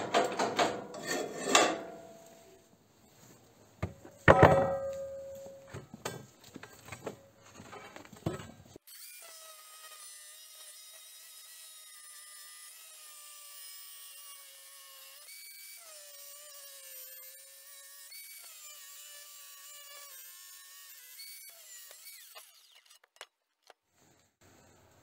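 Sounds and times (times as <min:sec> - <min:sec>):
angle grinder cutting steel pipe: 0:08.9 - 0:23.1.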